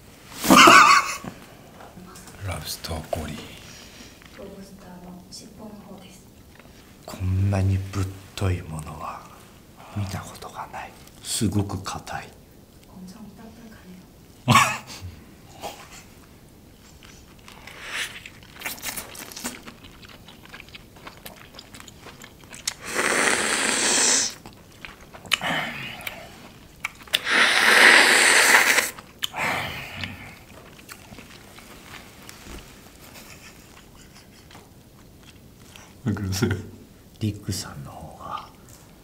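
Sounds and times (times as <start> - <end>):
person biting and chewing: 17.2 - 29.4
loud mouth sounds: 22.7 - 24.4, 27.1 - 30.4.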